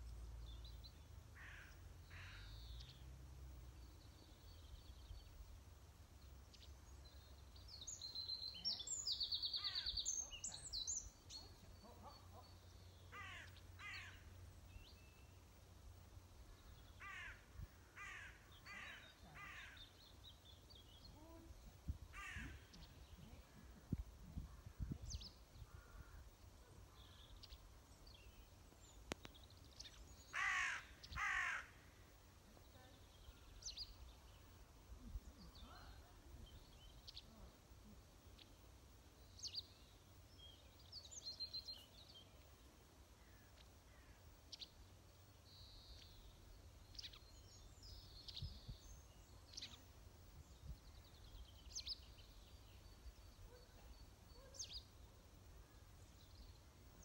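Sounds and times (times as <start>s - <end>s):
small birds chirping: 0.0s - 57.0s
large bird calls: 30.3s - 31.8s.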